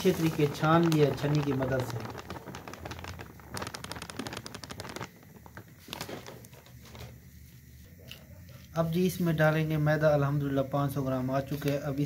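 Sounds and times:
sieve ticking while shaken: 0.0s - 5.7s.

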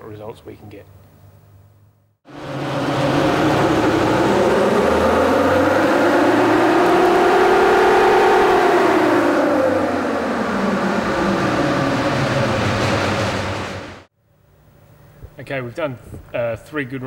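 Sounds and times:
steady low hum: 0.0s - 16.7s
engine and driveline whine: 2.3s - 14.1s
tyres spinning dyno rollers: 2.3s - 14.1s.

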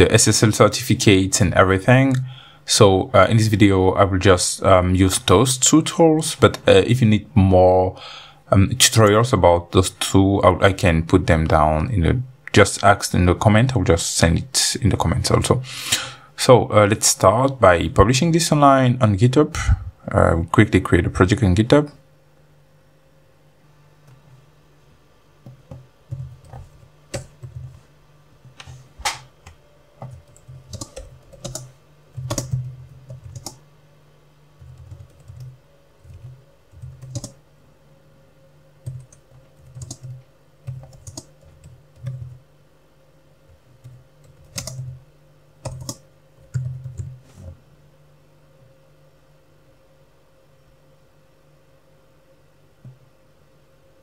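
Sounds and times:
typing on computer keyboard: 25.5s - 27.7s, 30.0s - 33.6s, 34.6s - 37.4s, 38.8s - 42.4s, 43.8s - 45.0s, 45.6s - 47.1s.

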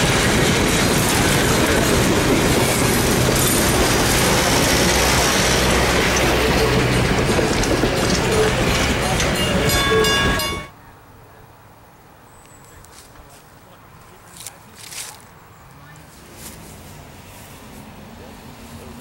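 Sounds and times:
train coaches rolling past: 0.0s - 10.8s, 13.0s - 19.0s
wheels clicking over rail joints: 0.0s - 10.8s.

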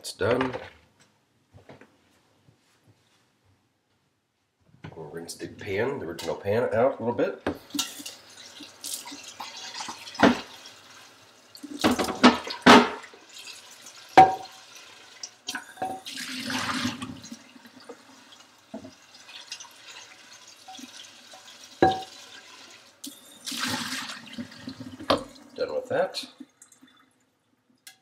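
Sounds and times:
kitchen tap running: 7.4s - 27.2s
pan knocking against sink: 14.2s - 14.5s, 21.8s - 22.1s.

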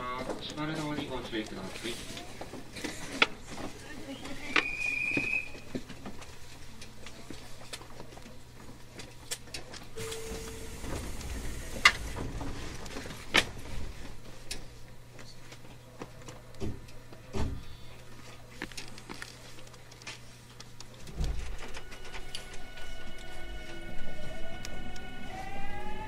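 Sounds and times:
train interior low hum: 0.0s - 19.4s, 20.2s - 26.0s
brief steady tone: 10.0s - 11.1s.

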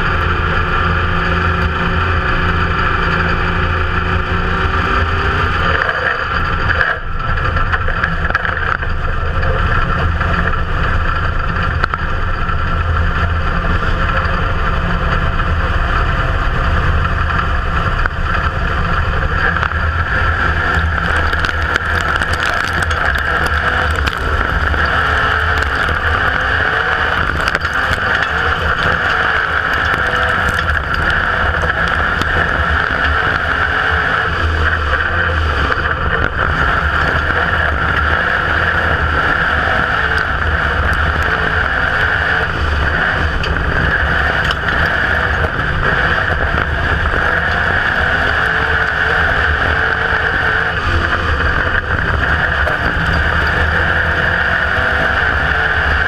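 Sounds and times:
race car engine running hard: 0.0s - 56.0s.

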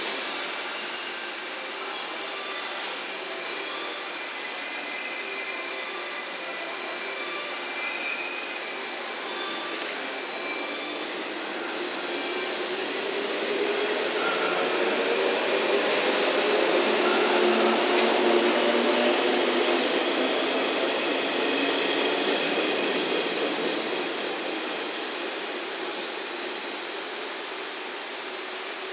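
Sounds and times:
electric train running past: 0.0s - 28.9s.

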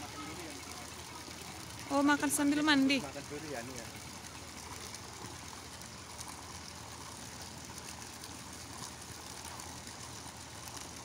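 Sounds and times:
water pouring into a pool: 0.0s - 11.0s.

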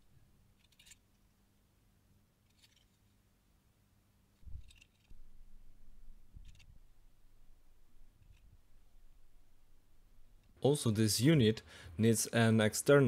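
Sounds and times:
hands rustling a circuit board: 0.0s - 1.4s, 2.4s - 3.3s, 4.3s - 10.6s.

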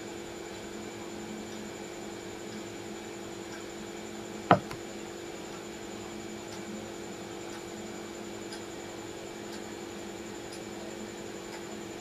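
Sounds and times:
electrical hum and hiss: 0.0s - 12.0s
faint ticks: 11.5s - 11.7s.

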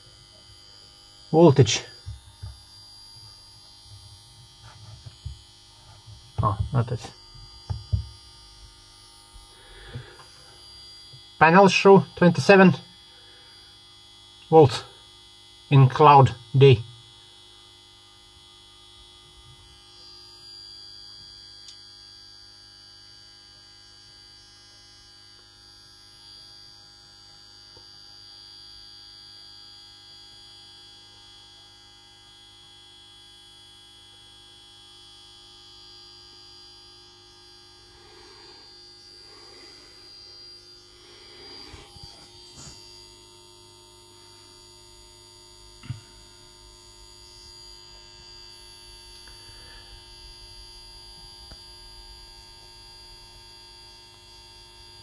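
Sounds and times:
electrical hum: 0.0s - 55.0s
brief knock: 7.7s - 8.1s
high-pitched electronic whine: 35.2s - 55.0s.

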